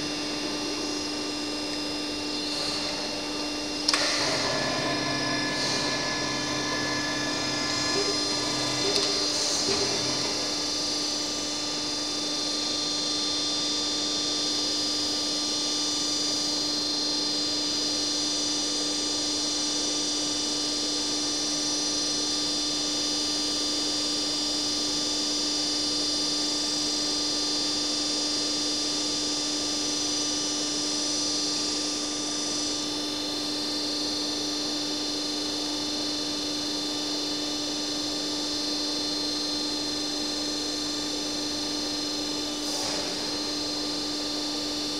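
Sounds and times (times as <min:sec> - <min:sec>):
machine hum: 0:00.0 - 0:12.1, 0:41.8 - 0:44.9
high machine whine: 0:00.0 - 0:14.6, 0:29.3 - 0:44.9.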